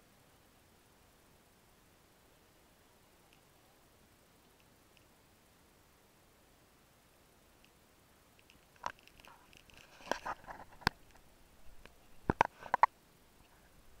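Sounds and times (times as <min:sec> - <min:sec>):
sharp clicks and taps: 0:11.8 - 0:12.9.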